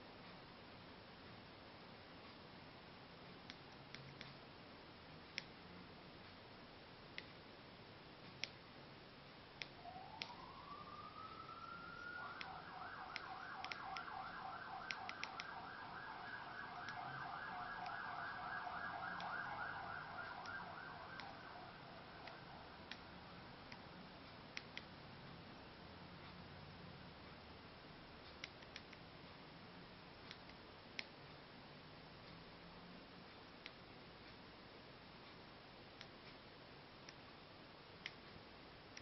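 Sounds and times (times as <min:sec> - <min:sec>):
faint siren warbling: 0:09.8 - 0:23.4
sharp clicks: 0:12.4 - 0:14.1, 0:14.9 - 0:15.6.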